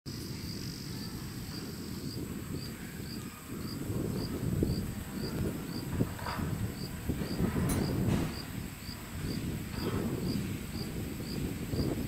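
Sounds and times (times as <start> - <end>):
insect chirping: 0.1 - 6.0, 6.7 - 9.6.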